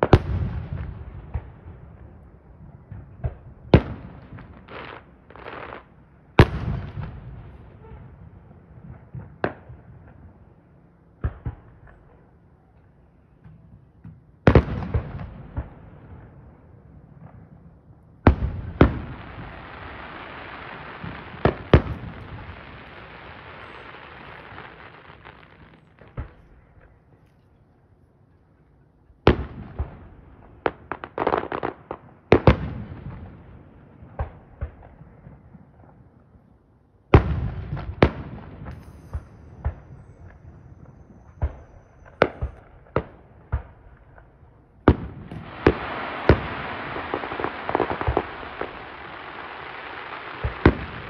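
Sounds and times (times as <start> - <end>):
fireworks bangs: 0.0 - 10.6, 13.2 - 16.5, 17.1 - 27.5, 37.2 - 51.0
fireworks crackling: 3.7 - 8.0, 18.3 - 27.5, 37.2 - 51.0
long steady hiss: 19.0 - 26.0, 45.4 - 51.0.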